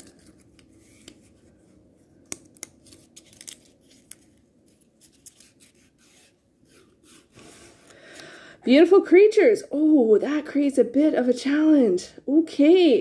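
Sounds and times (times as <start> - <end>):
paper rustling and crinkling: 0.0 - 7.8.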